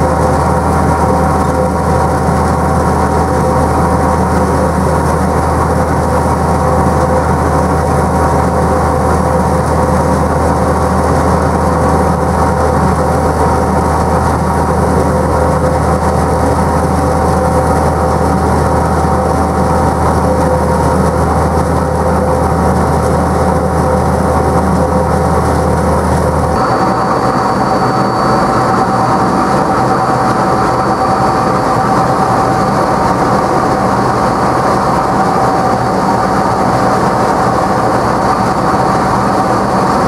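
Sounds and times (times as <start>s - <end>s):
low hum: 0.0s - 40.0s
roller mill mechanical drone: 0.0s - 40.0s
steady whining tones: 0.0s - 40.0s.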